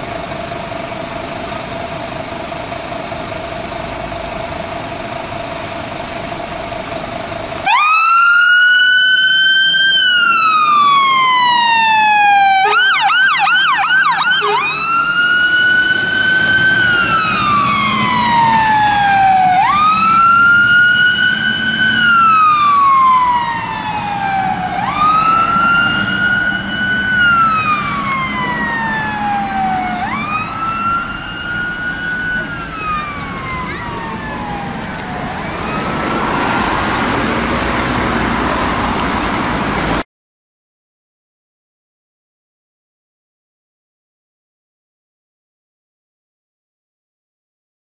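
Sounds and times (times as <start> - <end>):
engine hum: 0.0 - 40.0
fire engine siren: 0.0 - 40.0.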